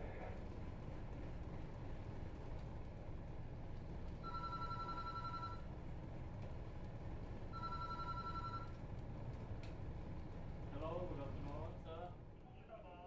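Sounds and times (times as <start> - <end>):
steady low rumble: 0.0 - 4.3, 8.7 - 13.0
telephone ringing: 4.2 - 5.7, 7.5 - 8.8.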